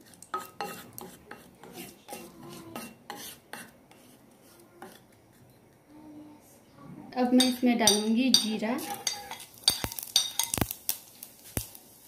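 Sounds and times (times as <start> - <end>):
spatula scraping metal pan: 0.0 - 5.0, 7.4 - 10.6.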